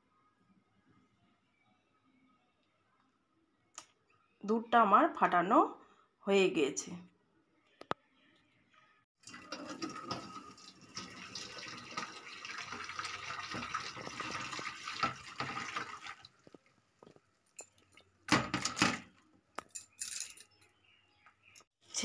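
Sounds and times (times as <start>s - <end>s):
liquid pouring through strainer: 9.2s - 16.6s.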